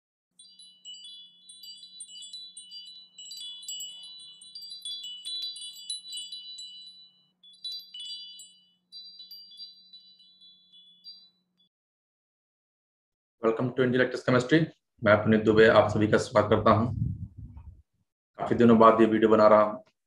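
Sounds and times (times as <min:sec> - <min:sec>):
wind chimes tinkling: 0:00.3 - 0:11.7.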